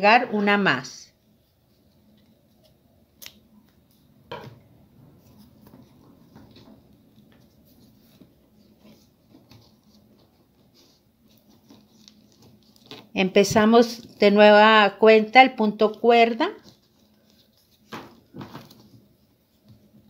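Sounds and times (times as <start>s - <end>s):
paper tubes rustling and tapping: 5.1s - 20.0s.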